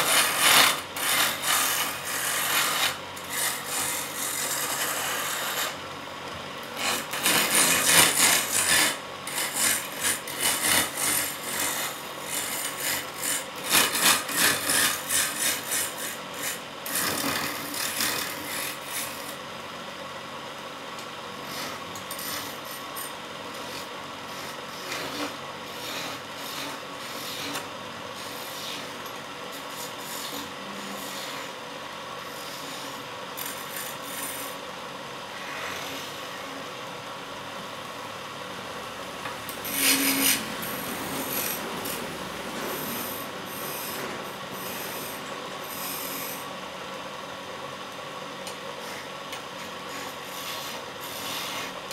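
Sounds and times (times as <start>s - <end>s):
gouge scraping wood on lathe: 0.0s - 5.8s, 6.8s - 19.4s, 21.4s - 29.0s, 29.6s - 31.6s, 39.6s - 46.5s, 48.8s - 51.8s.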